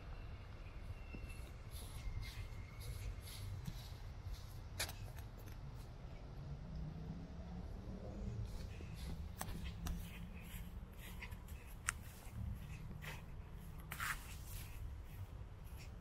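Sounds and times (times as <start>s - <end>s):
footsteps on paved path: 1.2s - 5.1s, 8.5s - 16.0s.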